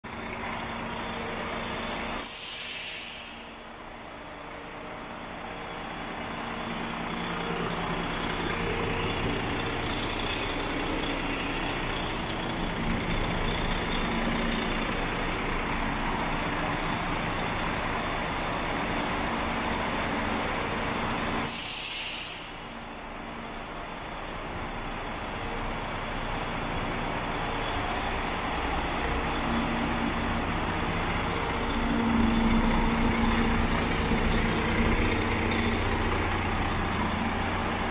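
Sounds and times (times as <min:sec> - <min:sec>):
diesel truck engine idling: 0:00.1 - 0:37.9
air brake hiss: 0:02.2 - 0:03.6, 0:21.4 - 0:22.7.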